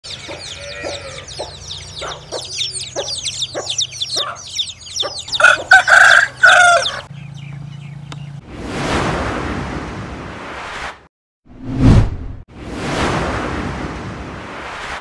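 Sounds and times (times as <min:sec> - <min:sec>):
chicks peeping: 0:00.1 - 0:07.6
rooster crowing: 0:00.3 - 0:01.5, 0:05.1 - 0:07.1.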